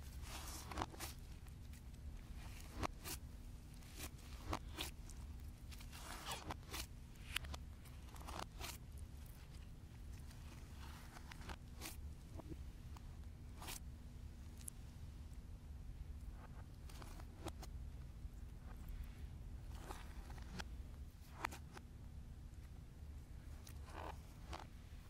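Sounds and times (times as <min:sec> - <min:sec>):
slime crackling and squishing: 0:00.0 - 0:12.6.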